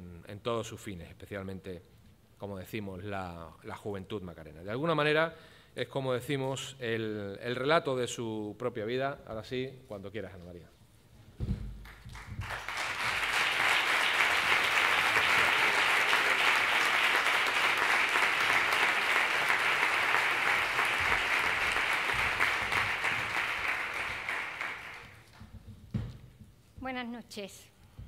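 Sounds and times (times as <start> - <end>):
audience applauding: 11.8 - 25.3.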